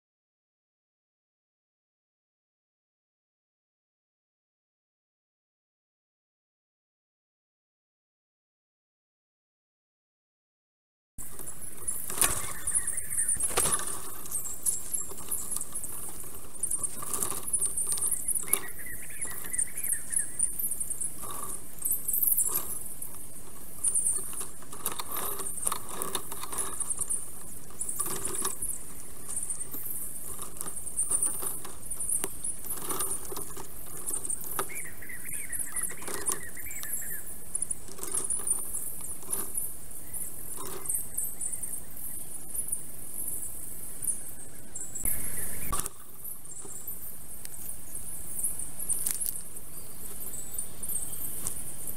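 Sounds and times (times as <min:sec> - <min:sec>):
high chattering birdsong: 0:11.2 - 0:51.9
low bird warbling: 0:11.2 - 0:51.9.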